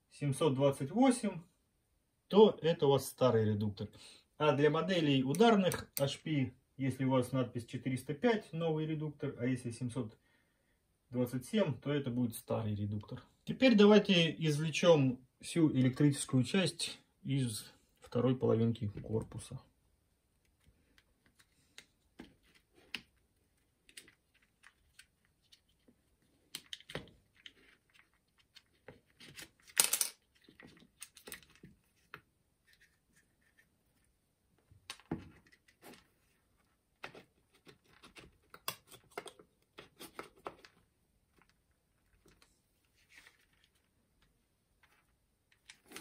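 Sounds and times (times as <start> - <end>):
plastic clicks and scrapes: 37.0 - 43.8.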